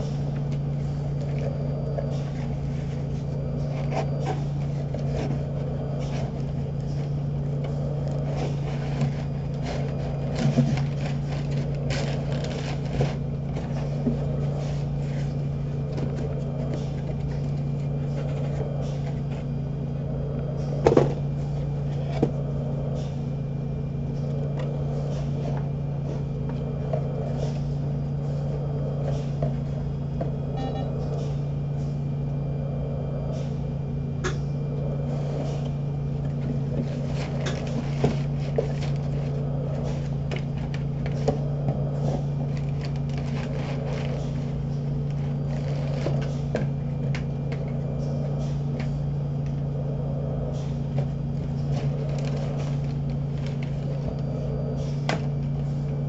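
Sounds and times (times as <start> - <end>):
cardboard and paper rustling: 0.0 - 22.4, 35.7 - 47.8, 50.6 - 56.0
low machine hum: 0.0 - 56.0.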